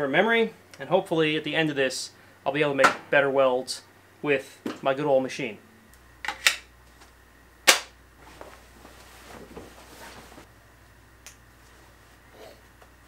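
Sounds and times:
jacket rustling: 8.2 - 10.5.

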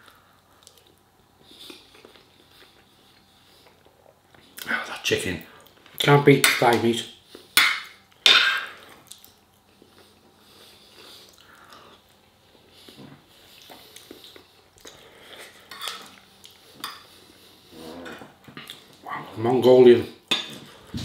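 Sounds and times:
man chewing: 0.1 - 4.7, 7.2 - 19.1.

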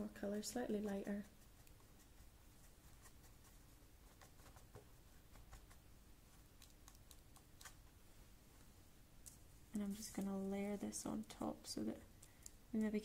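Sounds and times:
paintbrush clicks and taps: 6.6 - 7.8, 12.1 - 13.0.

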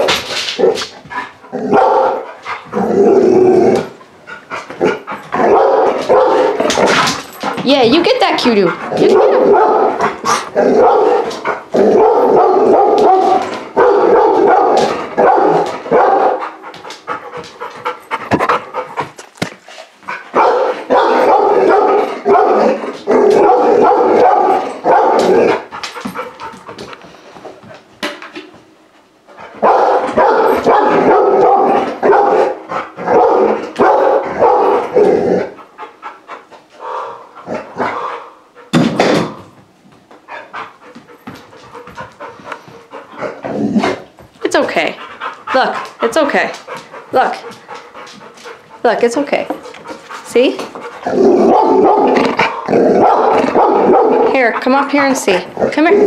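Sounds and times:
puppy barking rapidly: 1.7 - 2.2, 5.4 - 6.6, 8.2 - 10.2, 10.8 - 11.2, 12.0 - 16.4, 20.3 - 22.6, 23.4 - 25.2, 29.6 - 34.8, 51.5 - 52.2, 53.0 - 54.4.

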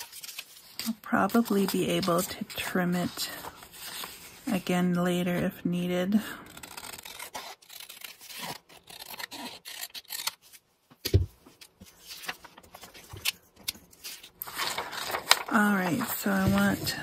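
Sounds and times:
paper sliding and shuffling: 0.0 - 5.5, 11.5 - 17.0
scissors snipping paper: 6.5 - 10.4.

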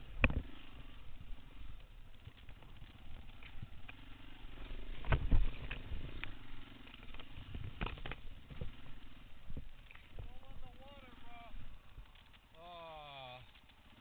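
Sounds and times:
bike knocks and rattles: 0.0 - 10.9
dirt bike engine low speed: 0.0 - 14.0.

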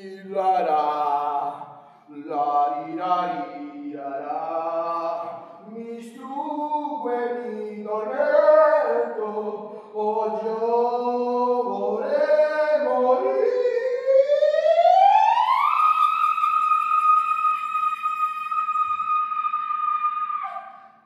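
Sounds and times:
wordless singing in harmony: 0.0 - 14.3.

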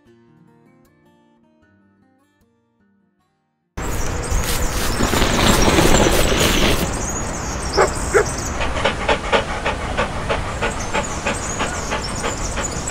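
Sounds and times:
rush of noise: 3.8 - 12.9
dog panting rapidly: 4.3 - 12.9
dog barking: 7.7 - 12.9.

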